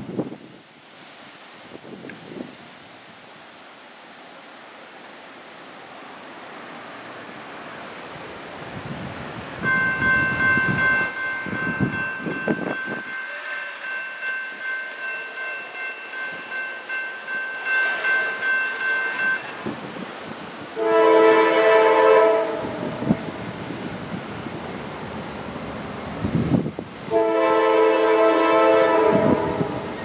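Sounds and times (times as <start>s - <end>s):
crossing bell ringing: 9.6s - 20.0s
locomotive air horn blast: 20.8s - 23.2s, 27.1s - 30.0s.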